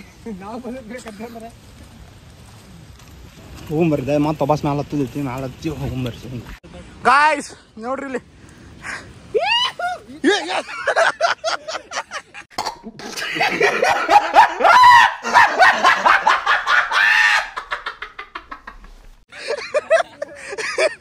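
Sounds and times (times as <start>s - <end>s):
group of people laughing: 9.5s - 21.0s.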